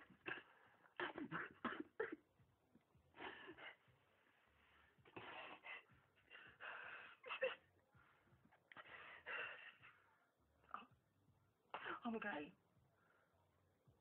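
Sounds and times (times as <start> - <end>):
gasping breaths: 4.7 - 7.2
man sobbing: 6.3 - 7.8.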